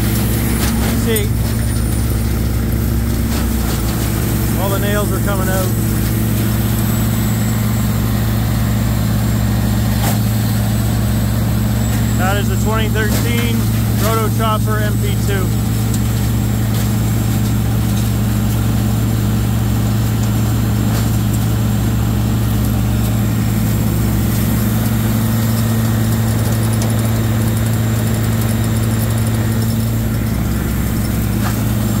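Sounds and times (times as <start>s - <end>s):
diesel grinder low drone: 0.0s - 32.0s.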